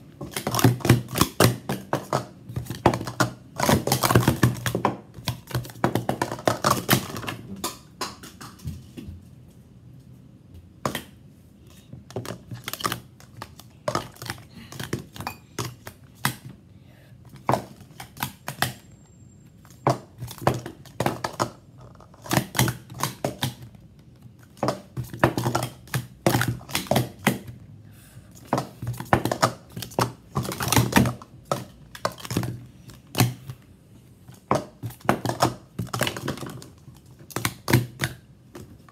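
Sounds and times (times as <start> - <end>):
plastic cups clacking: 0.1 - 8.7, 12.0 - 16.5, 19.7 - 27.6, 28.3 - 33.6, 34.3 - 38.9.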